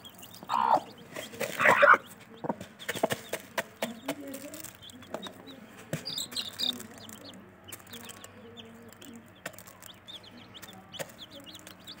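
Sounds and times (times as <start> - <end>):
chicks peeping: 0.0 - 12.0
hen pecking grain in plastic tub: 0.0 - 12.0
hen clucking softly: 0.5 - 1.0.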